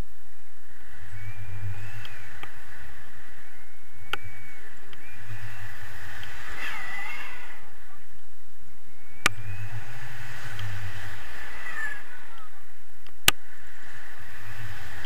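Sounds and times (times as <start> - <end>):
wind buffeting microphone: 0.0 - 15.0
thin whistling: 0.3 - 8.1, 8.7 - 15.0
sharp clicks: 4.0 - 5.1.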